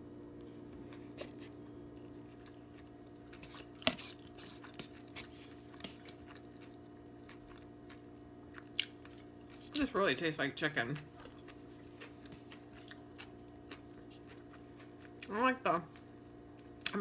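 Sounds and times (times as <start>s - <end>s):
steady low hum: 0.0s - 17.0s
person chewing: 0.4s - 9.8s, 11.0s - 15.3s.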